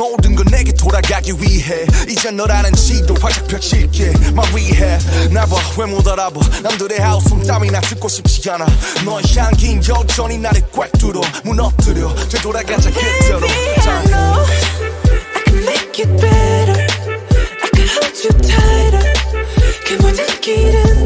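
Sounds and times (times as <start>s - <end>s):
rapping over hip-hop beat: 0.0s - 21.0s
heavy bass notes: 0.2s - 8.5s, 9.3s - 17.5s, 18.3s - 20.0s, 20.6s - 21.0s.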